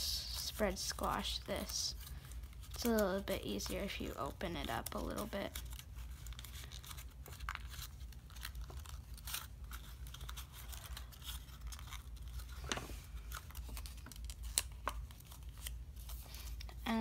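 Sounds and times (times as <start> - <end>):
paper crinkling and crackling: 0.1 - 17.0.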